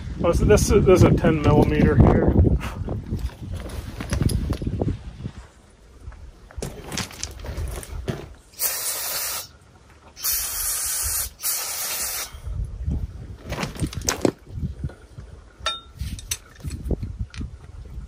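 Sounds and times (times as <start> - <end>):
pressurised spray hissing: 8.5 - 9.6, 10.2 - 12.4.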